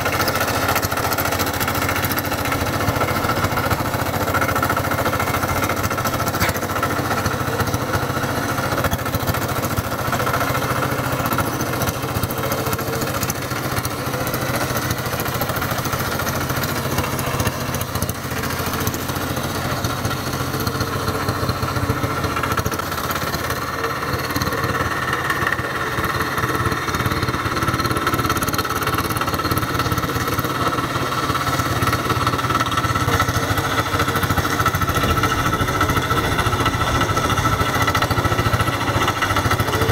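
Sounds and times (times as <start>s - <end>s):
diesel engine running: 0.0s - 39.9s
rotary tiller chopping soil: 0.0s - 39.9s.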